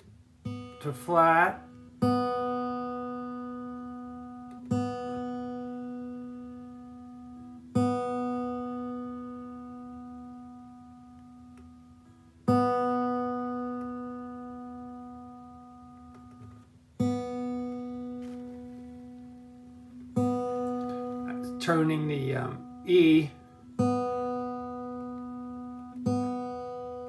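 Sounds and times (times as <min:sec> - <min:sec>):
guitar string plucked: 0:12.5 - 0:27.0.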